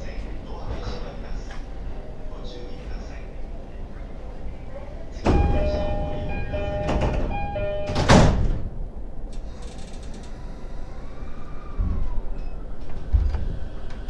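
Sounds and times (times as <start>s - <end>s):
train rumbling quietly: 0.0s - 14.0s
train doors banging shut: 5.2s - 9.6s
two-note door chime: 5.3s - 8.4s.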